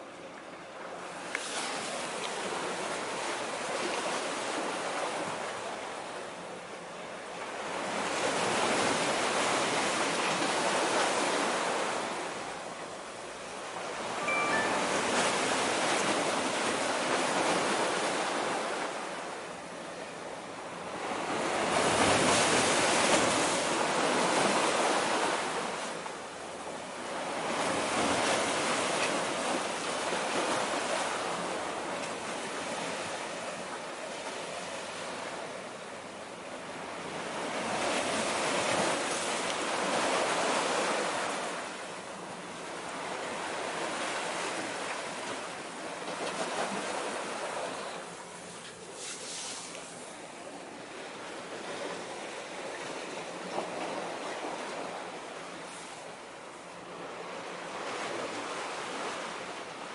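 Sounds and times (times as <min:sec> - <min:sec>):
small waves washing against concrete: 0:43.2 - 0:50.3.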